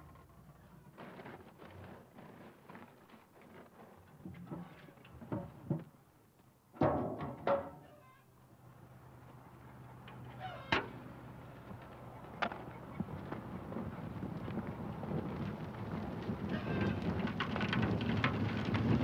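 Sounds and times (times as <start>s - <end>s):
metal can knocking on steel barrel: 6.8s - 7.8s.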